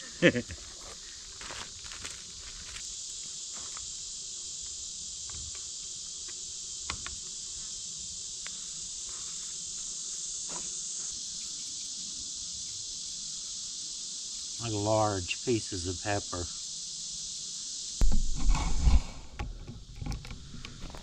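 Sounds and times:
chorus of insects: 0.0 - 21.0.

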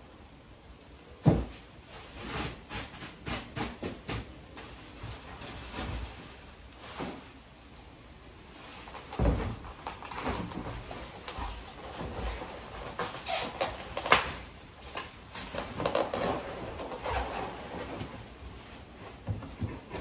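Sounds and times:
bubble wrap crinkling: 4.6 - 19.0.

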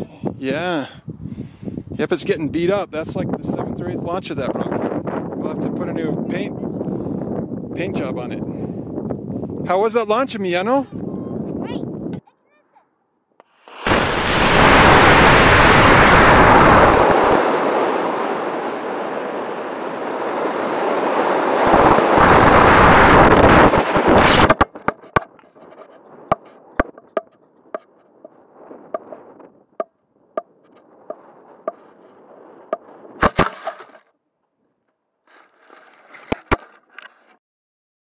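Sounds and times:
rushing air noise: 13.6 - 26.4.

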